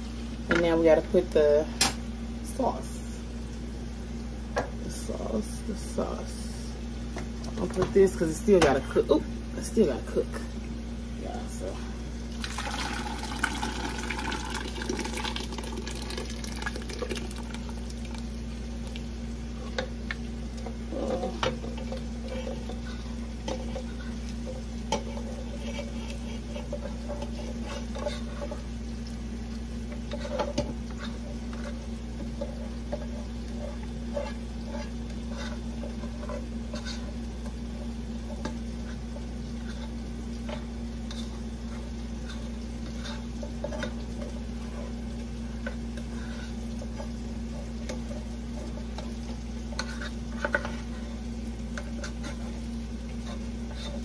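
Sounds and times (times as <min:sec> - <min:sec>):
sauce sizzling in a pan: 0:11.9 - 0:54.0.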